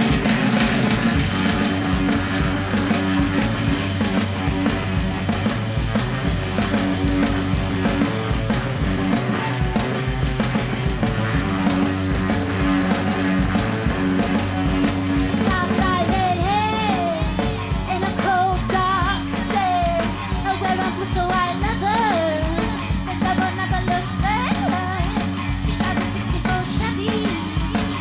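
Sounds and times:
drums: 0:00.0 - 0:28.0
electric guitar: 0:00.0 - 0:28.0
woman singing: 0:15.2 - 0:28.0.

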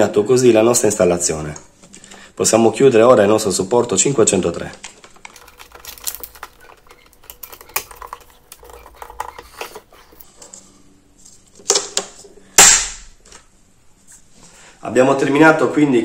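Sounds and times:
plastic clicks and rattles: 0:04.6 - 0:10.2.

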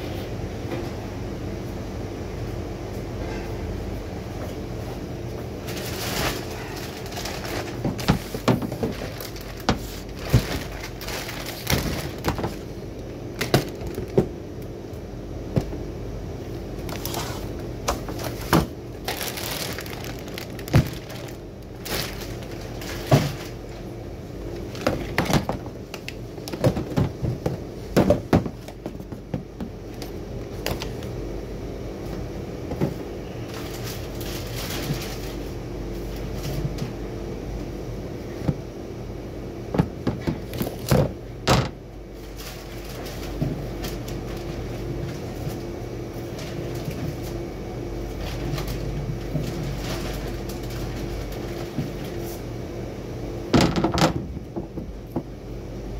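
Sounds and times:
steady low hum: 0:00.0 - 0:55.9
plastic net bag crinkling: 0:05.6 - 0:14.2, 0:16.8 - 0:23.9, 0:33.5 - 0:35.5, 0:42.2 - 0:47.4, 0:48.1 - 0:52.2.

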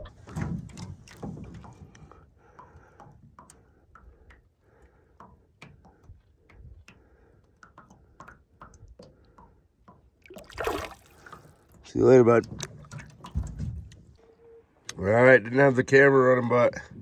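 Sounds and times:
water splashes and drips: 0:00.0 - 0:14.2
fish splashing free: 0:10.2 - 0:11.8.

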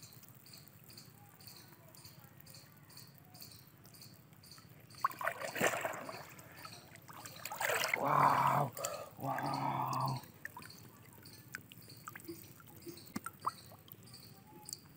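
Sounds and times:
muddy water splashing: 0:04.9 - 0:14.1
person's voice: 0:08.0 - 0:10.2.

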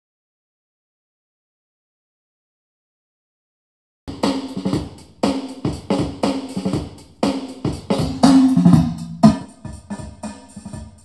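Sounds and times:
drum-heavy music from small speaker: 0:04.1 - 0:11.0.

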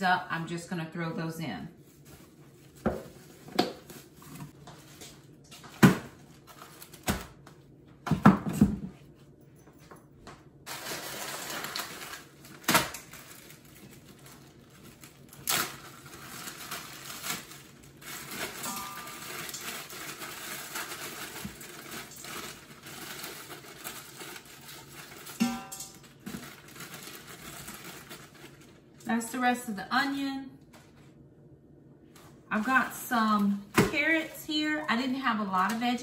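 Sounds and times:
plastic bag rustling: 0:01.8 - 0:05.4, 0:06.1 - 0:07.4, 0:10.7 - 0:29.1
vegetables clattering into steel pot: 0:18.4 - 0:28.2.

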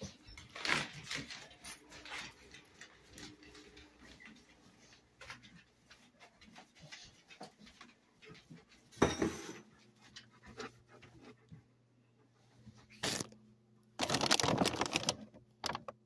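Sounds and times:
dog panting: 0:09.8 - 0:11.8.

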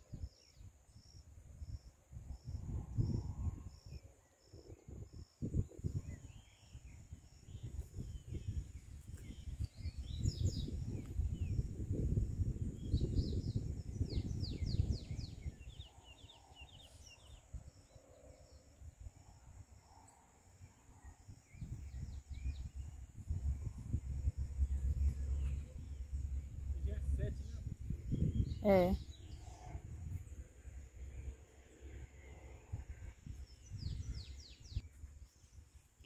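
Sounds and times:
low rumbling on microphone: 0:01.0 - 0:04.0, 0:04.8 - 0:17.8, 0:21.0 - 0:31.4, 0:32.0 - 0:34.9
small birds chirping: 0:03.8 - 0:11.7, 0:12.6 - 0:29.7, 0:33.3 - 0:36.0.

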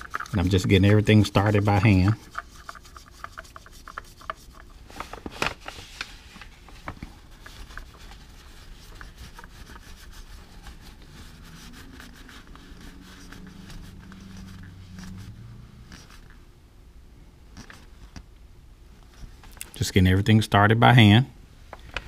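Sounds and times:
towel rubbing and wiping: 0:00.0 - 0:16.4.

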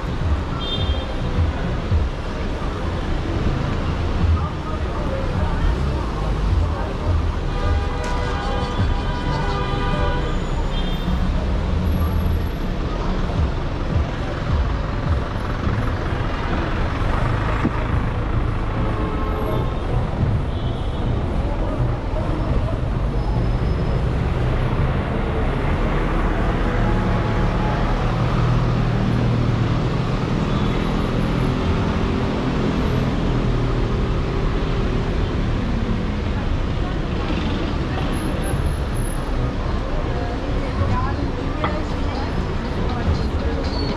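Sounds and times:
city street traffic: 0:00.0 - 0:43.9
heavy vehicle engine running: 0:11.4 - 0:20.5.

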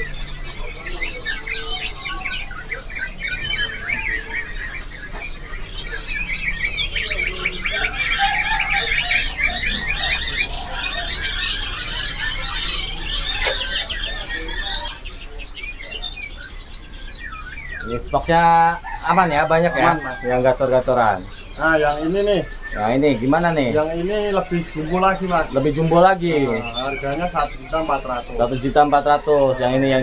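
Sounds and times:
songbirds chirping and trilling: 0:00.0 - 0:30.0.

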